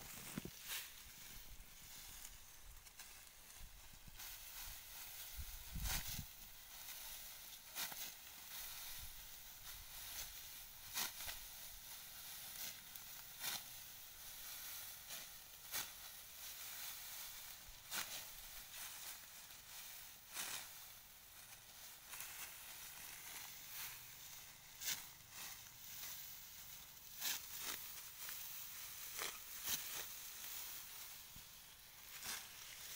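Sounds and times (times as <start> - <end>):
dry straw rustling: 0.0 - 32.9
sickle cutting dry stalks: 0.0 - 32.9.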